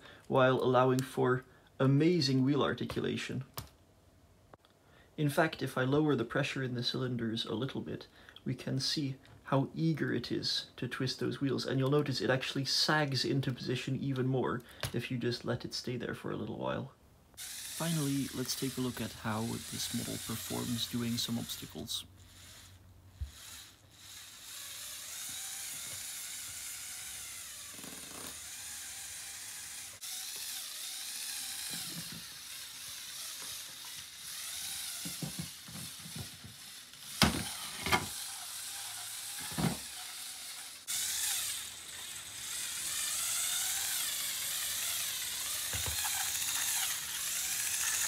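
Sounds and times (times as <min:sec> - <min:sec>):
toy motors and gears whirring: 0:17.3 - 0:48.0.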